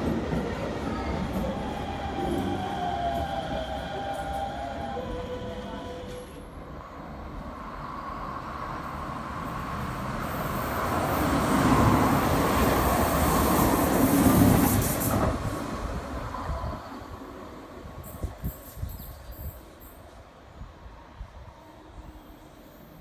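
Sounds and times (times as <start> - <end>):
electric train passing: 0.0 - 23.0.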